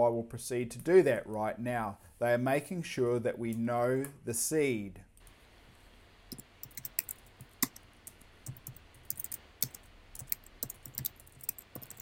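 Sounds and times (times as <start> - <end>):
typing on computer keyboard: 6.3 - 7.8, 8.4 - 12.0.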